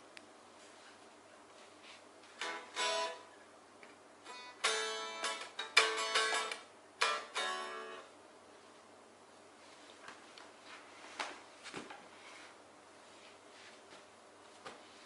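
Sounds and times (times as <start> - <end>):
guitar chords and notes: 2.4 - 3.4, 4.2 - 8.1.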